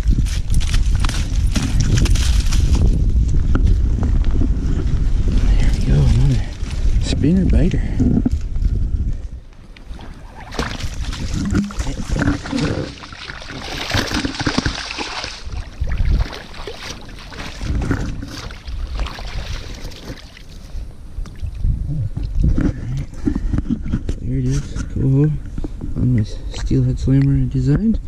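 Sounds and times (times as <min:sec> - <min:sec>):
river water splashing: 0:09.9 - 0:21.5.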